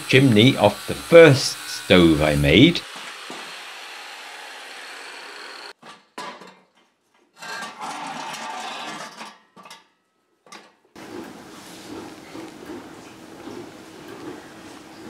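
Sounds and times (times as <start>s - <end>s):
angle grinder cutting steel pipe: 0.0s - 5.8s.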